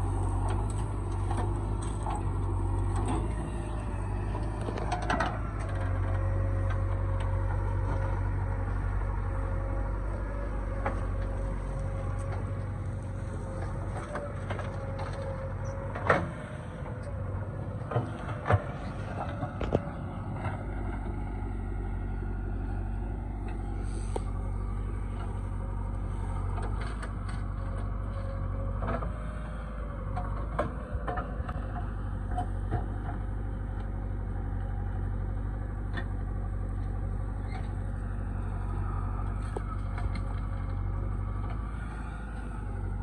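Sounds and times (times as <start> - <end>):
loader bucket digging soil: 0.0 - 22.1, 22.7 - 33.4
diesel engines droning: 0.0 - 43.0.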